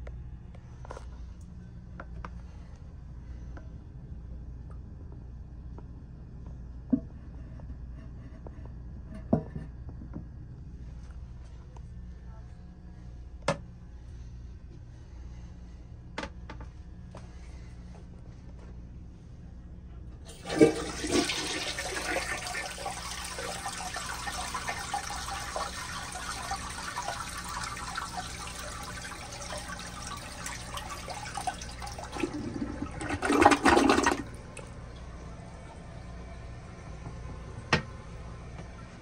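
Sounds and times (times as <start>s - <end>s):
toilet water rushing: 20.3s - 35.1s
toilet siphon gurgle: 20.3s - 35.3s.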